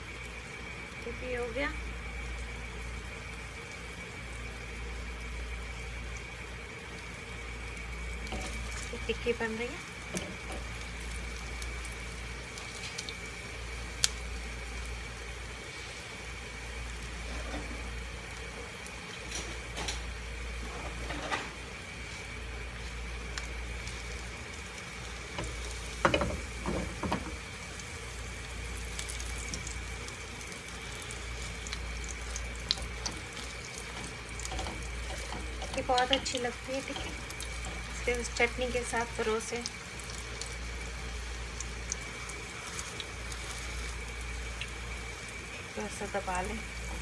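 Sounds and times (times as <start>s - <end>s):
food sizzling in oil: 0.0s - 47.0s.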